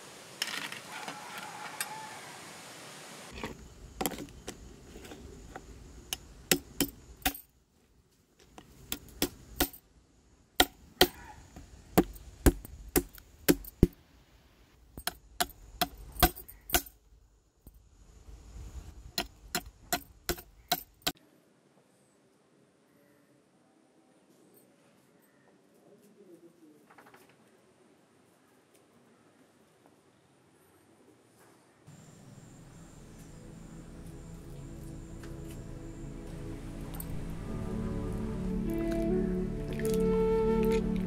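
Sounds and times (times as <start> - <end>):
crab shells clicking and knocking: 19.2 - 21.2.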